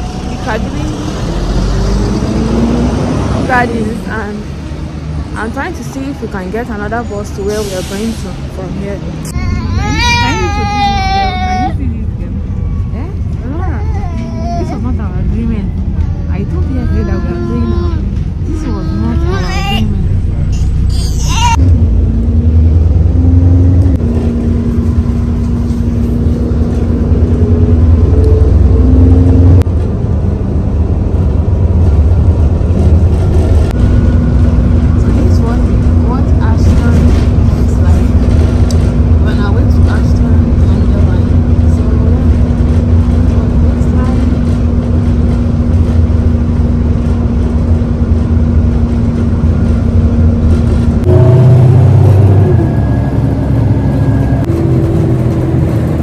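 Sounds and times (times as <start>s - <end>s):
bus engine rumbling: 0.0s - 56.0s
drivetrain whine: 21.6s - 56.0s.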